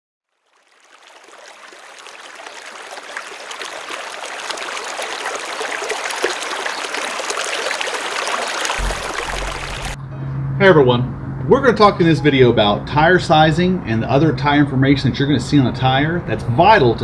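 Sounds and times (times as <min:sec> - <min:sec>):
waterfall pouring into pool: 0:00.4 - 0:10.0.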